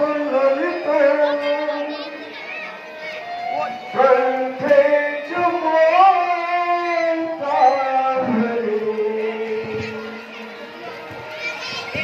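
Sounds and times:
person singing devotional song: 0.0 - 2.1, 3.9 - 10.1
musical accompaniment: 0.0 - 12.0.

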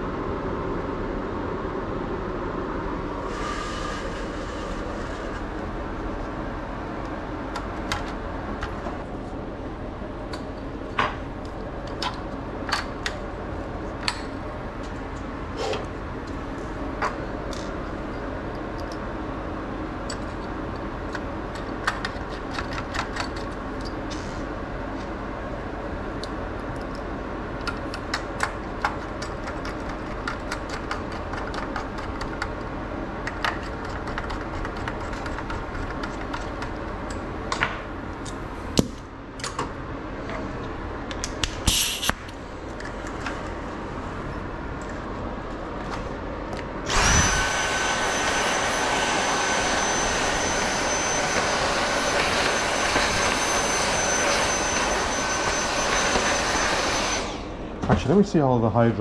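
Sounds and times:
steady background hum: 0.0 - 59.0
small tools clicking and tapping: 20.1 - 24.2
electric air blower: 46.8 - 57.7.

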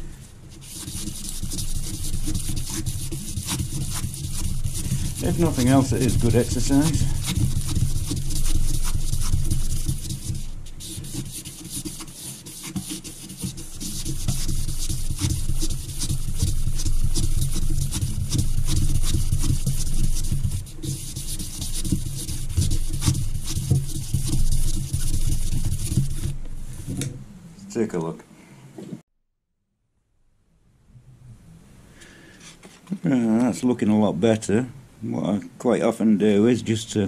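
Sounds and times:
abrasive paper rubbing metal: 0.0 - 27.1.

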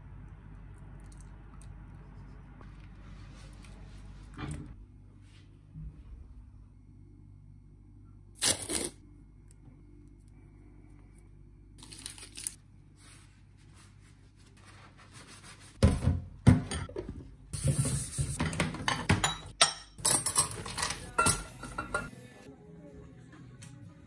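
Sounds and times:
dishes clattering in a metal sink: 15.8 - 22.2.

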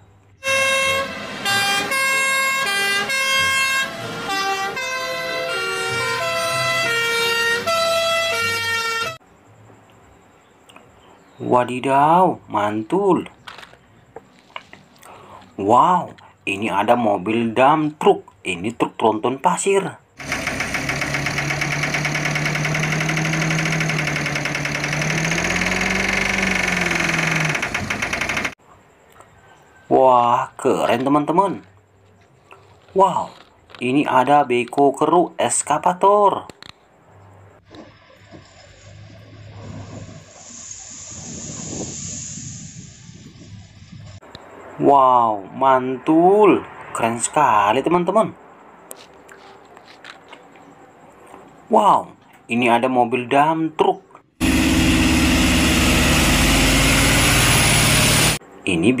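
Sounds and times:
fire engine sirens: 0.4 - 9.2
diesel truck engine clattering: 20.2 - 28.6, 54.4 - 58.4.

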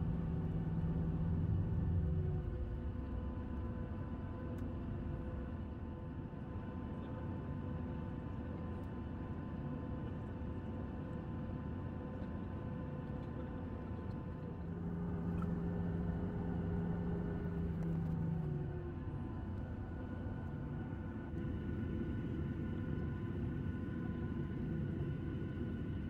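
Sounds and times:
steady whine: 14.5 - 26.0
low drone: 14.6 - 20.3
jet engines humming: 14.6 - 25.8.

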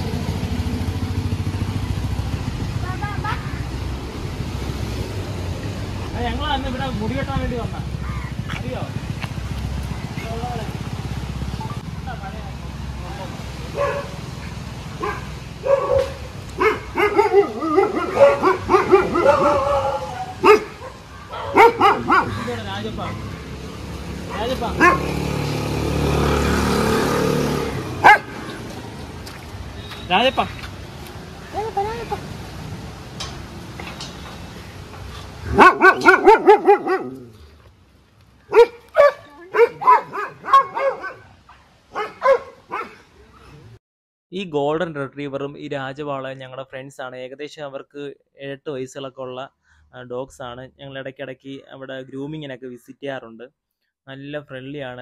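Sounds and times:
dogs barking and yipping: 13.7 - 25.7, 27.7 - 28.8, 31.4 - 32.4, 35.1 - 37.4, 38.4 - 43.7.

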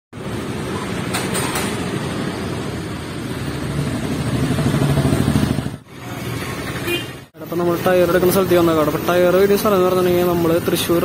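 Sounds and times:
motorcycle engine running: 3.6 - 5.8.

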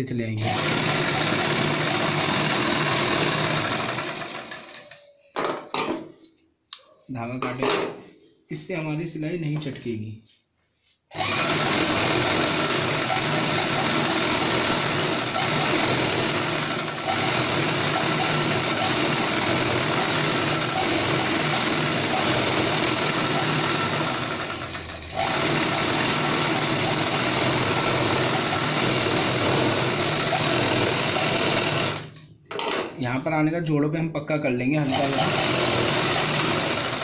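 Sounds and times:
sewing machine running: 0.4 - 5.0, 11.1 - 32.2, 34.8 - 37.0.

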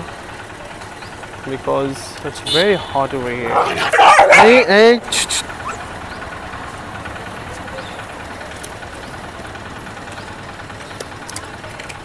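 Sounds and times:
low mechanical rumble: 2.9 - 12.0.

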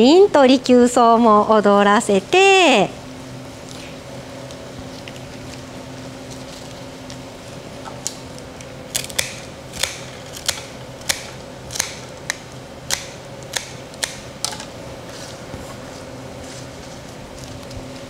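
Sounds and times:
faint steady hum: 0.0 - 18.0
scissors snipping: 8.9 - 14.7.

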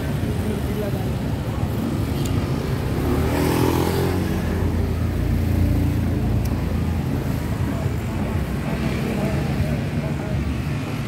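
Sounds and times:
traffic engines running: 0.0 - 11.0.

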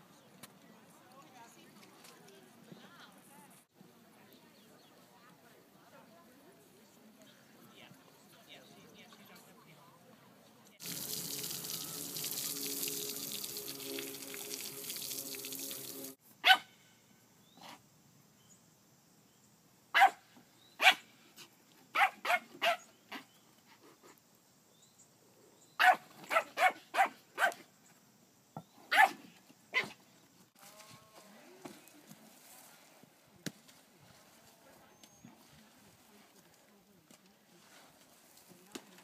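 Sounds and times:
loud steady hissing noise: 10.8 - 16.4
small dog barking: 16.4 - 16.7, 19.9 - 20.2, 20.8 - 21.0, 21.9 - 23.3, 25.8 - 27.6, 28.9 - 30.0.

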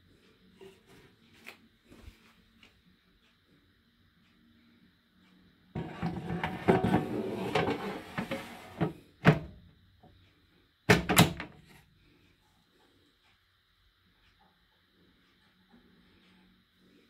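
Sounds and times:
plastic basket sliding and scraping: 5.8 - 9.1
basket shutting with clunks: 5.8 - 9.6.

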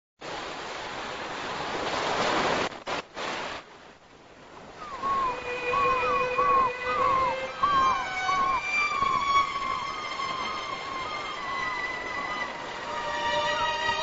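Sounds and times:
wave washing over sand: 0.2 - 14.0
high chirping calls: 4.8 - 9.8.

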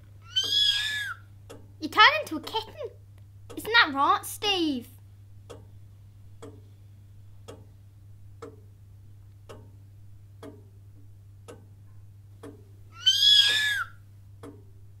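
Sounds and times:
kitten meowing: 0.2 - 1.2, 13.0 - 14.0
clock ticking: 1.4 - 12.8, 14.2 - 15.0.

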